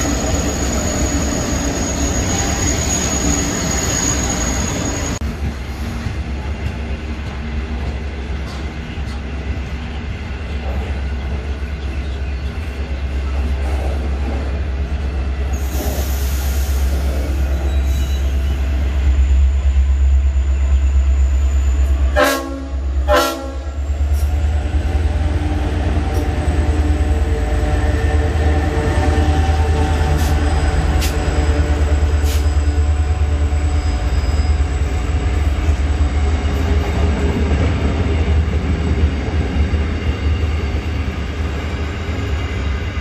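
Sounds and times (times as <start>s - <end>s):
freight train rumbling past: 0.0s - 43.0s
faint wheel squeal: 15.6s - 22.0s, 33.6s - 35.0s
train horn blasts: 22.0s - 23.9s.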